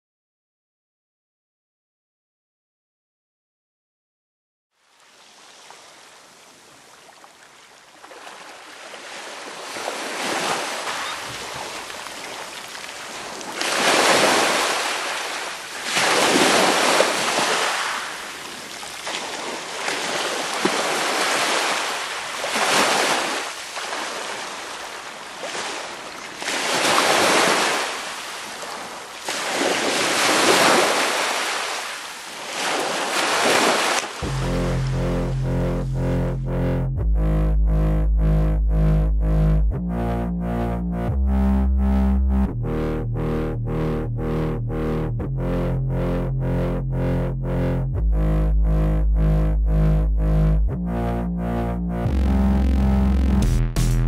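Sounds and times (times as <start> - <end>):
small waves washing over sand: 4.8 - 34.2.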